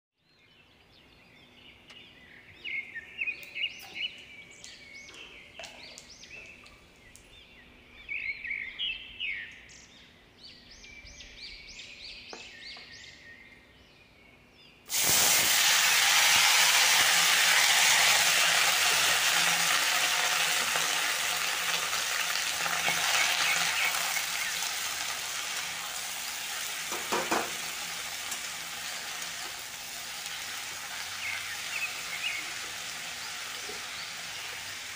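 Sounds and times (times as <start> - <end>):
low sizzle of oil: 14.9 - 34.9
vegetables sizzling in hot oil: 14.9 - 34.9
spatula knocking on pan: 26.9 - 27.6.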